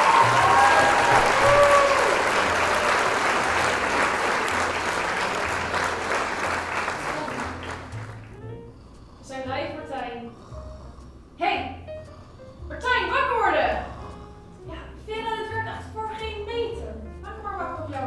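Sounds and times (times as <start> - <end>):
audience applause: 0.0 - 8.4.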